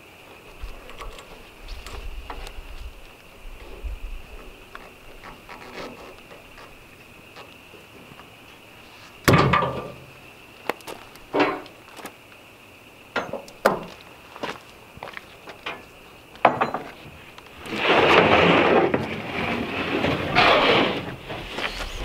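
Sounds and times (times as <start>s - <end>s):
wooden knocks and thumps: 13.2s - 14.0s, 16.4s - 17.2s
plywood sheet scraping across stack: 17.6s - 22.0s.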